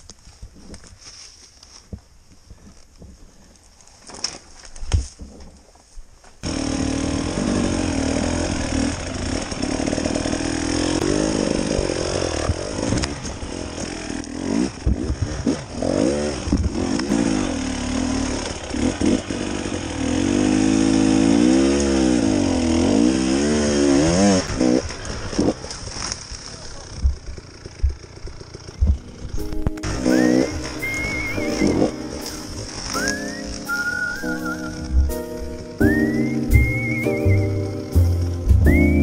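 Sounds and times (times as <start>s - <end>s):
dirt bike engine revving: 6.4s - 39.0s.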